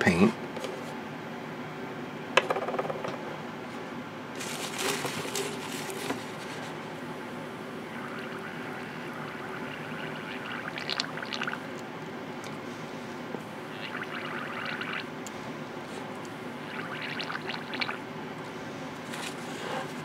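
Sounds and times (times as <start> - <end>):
paint bubbling in a cup: 7.5 - 11.7, 13.7 - 15.1, 16.6 - 18.0.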